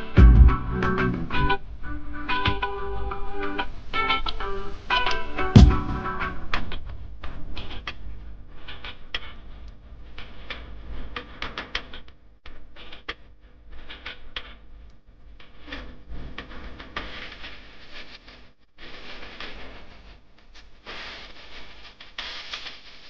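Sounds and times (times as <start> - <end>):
low steady rumble: 0.2 - 1.4.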